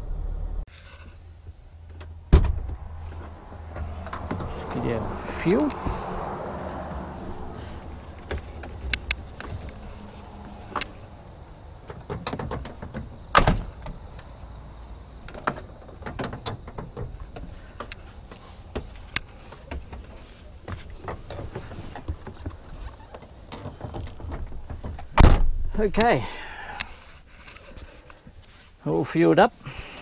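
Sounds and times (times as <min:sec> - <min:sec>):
clicks and knocks in truck cab: 0:11.8 - 0:14.0, 0:15.3 - 0:26.2.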